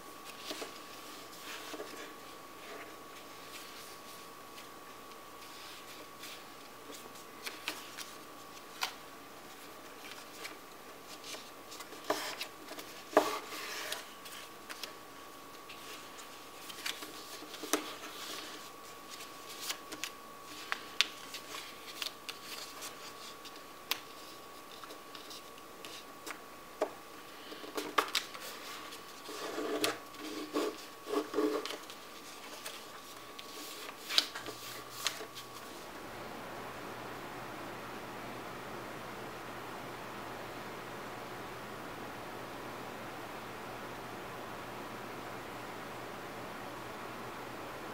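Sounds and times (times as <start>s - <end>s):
paper rustling and crackling: 0.2s - 15.0s, 15.6s - 26.4s, 27.3s - 35.9s.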